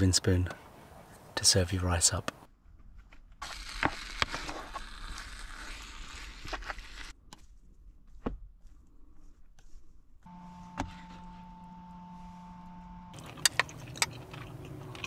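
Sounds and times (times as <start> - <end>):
steady hum: 10.2 - 15.0.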